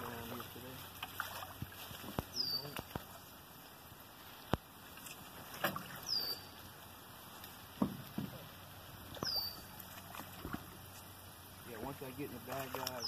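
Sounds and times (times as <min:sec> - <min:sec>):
water sloshing against metal hull: 0:00.0 - 0:03.8, 0:04.6 - 0:13.0.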